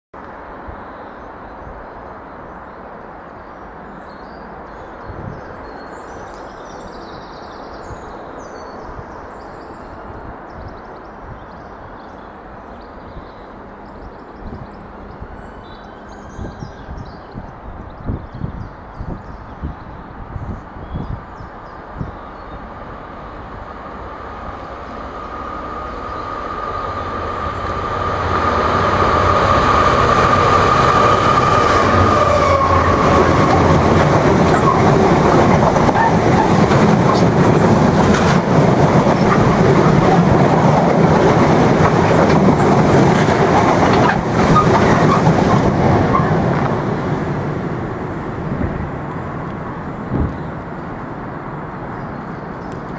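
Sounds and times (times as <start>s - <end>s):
diesel locomotive engine working hard: 22.7s - 52.9s
tank wagons clattering over rails: 33.4s - 46.6s.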